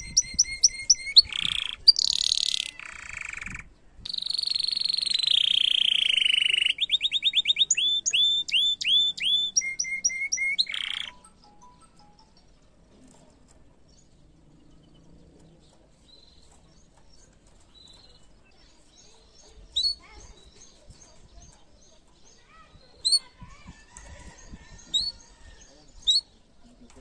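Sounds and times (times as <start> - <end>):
canary twittering: 0.0 - 11.2, 17.2 - 26.4
sharp canary chirps: 0.0 - 11.3, 15.7 - 26.6.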